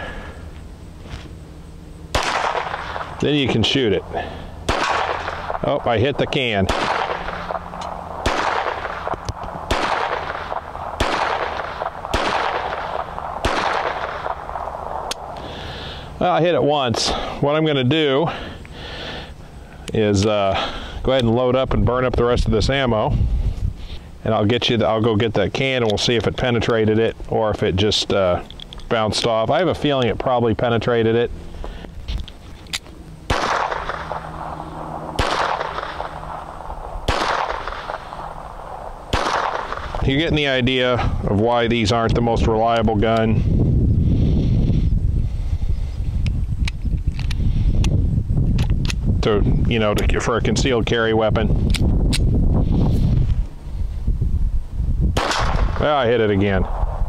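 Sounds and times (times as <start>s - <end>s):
pistol shots echoing: 2.1s - 3.5s, 4.6s - 15.4s, 33.2s - 40.0s, 55.2s - 55.8s.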